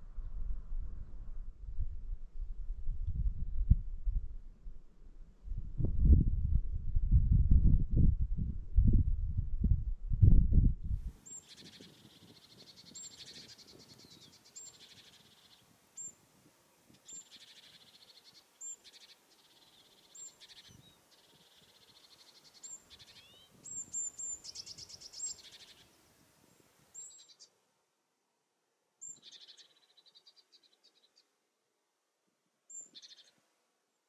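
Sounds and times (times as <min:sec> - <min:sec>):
songbirds singing: 0:11.2 - 0:27.6, 0:29.0 - 0:31.4, 0:32.7 - 0:33.4.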